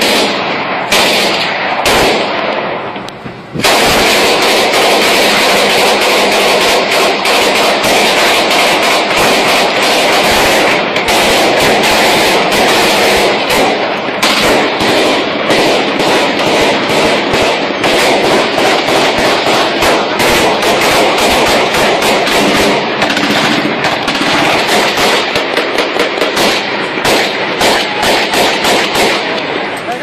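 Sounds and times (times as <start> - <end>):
rapid gunfire: 0.0 - 2.8, 3.6 - 30.0
rifle shots: 0.0 - 30.0.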